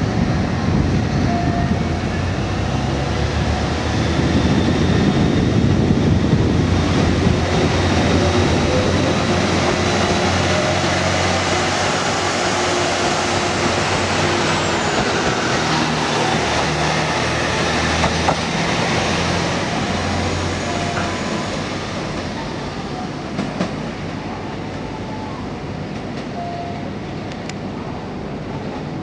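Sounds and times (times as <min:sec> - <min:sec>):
train wheels rumbling: 0:00.0 - 0:26.4
distant railcar approaching: 0:00.0 - 0:29.0.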